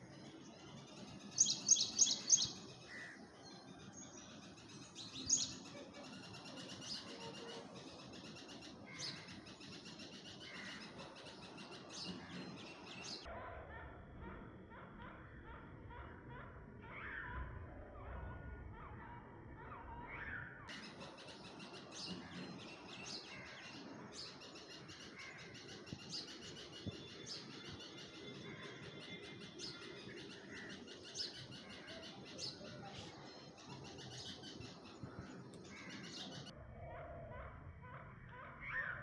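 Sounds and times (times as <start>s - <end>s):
small birds chirping: 0.0s - 13.3s, 20.7s - 36.6s.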